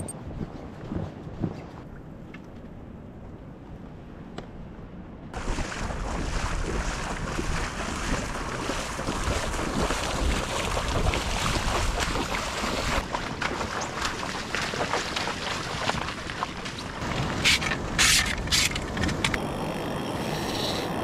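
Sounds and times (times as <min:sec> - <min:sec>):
wind buffeting microphone: 0:05.3 - 0:19.4.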